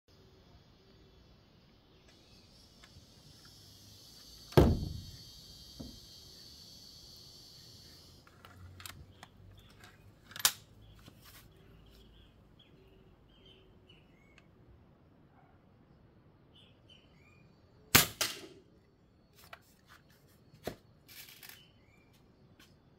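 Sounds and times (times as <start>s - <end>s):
steady high hiss: 0.1s - 9.7s
birds chirping: 1.0s - 14.7s, 15.3s - 17.9s
heavy metallic clunk: 4.6s - 5.2s
air rifle clicks: 8.3s - 10.7s.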